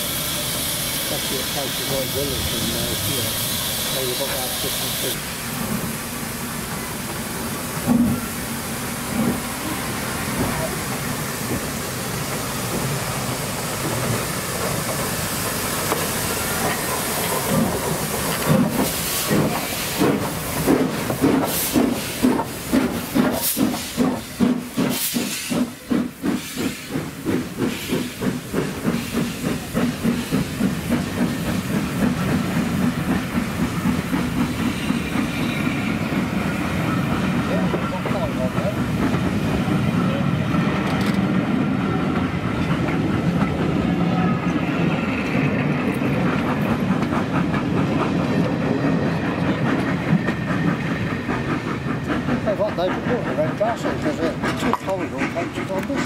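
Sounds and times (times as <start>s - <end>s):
steam locomotive hissing: 0.0s - 56.0s.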